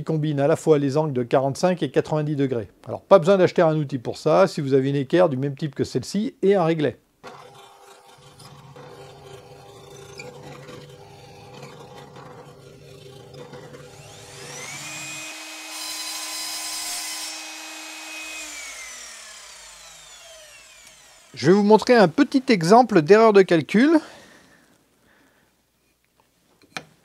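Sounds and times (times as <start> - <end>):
drill press motor hum: 7.2 - 21.5.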